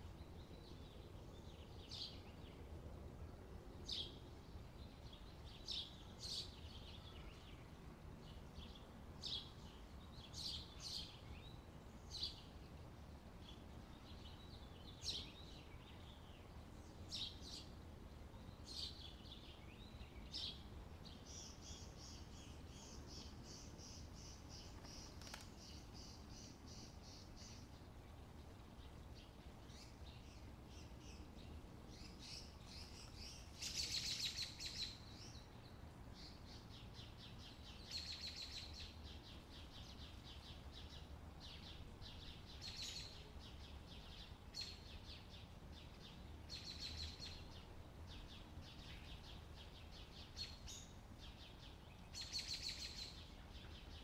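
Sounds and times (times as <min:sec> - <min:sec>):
low steady rumble: 0:00.0 - 0:33.9
faint bird chirping trills: 0:00.0 - 0:54.0.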